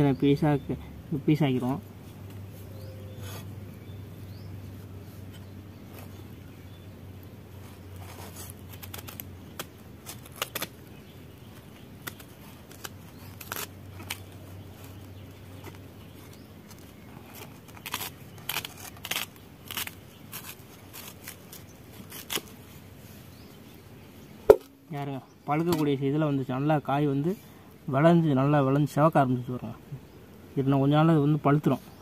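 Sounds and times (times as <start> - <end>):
blade cutting and scraping mango: 7.6 - 23.2.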